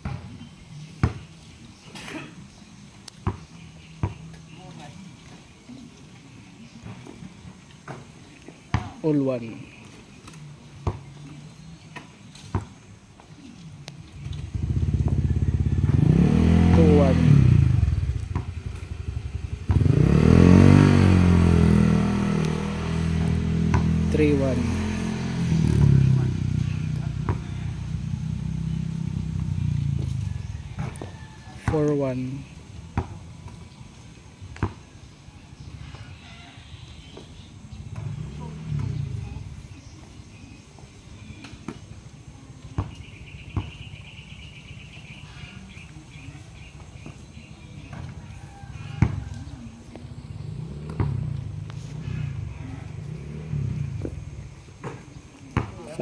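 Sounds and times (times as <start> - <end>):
basketball knocking backboard and rim: 0.0 - 0.3, 23.7 - 24.0, 55.6 - 55.8
basketball bouncing on dirt: 0.0 - 1.5, 3.1 - 4.6, 6.7 - 9.2, 9.8 - 24.2, 26.6 - 27.8, 28.7 - 33.8, 34.4 - 35.0, 37.0 - 39.4, 42.6 - 44.0, 46.8 - 56.0
vehicle engine running: 14.1 - 33.4, 37.8 - 39.9, 47.8 - 56.0.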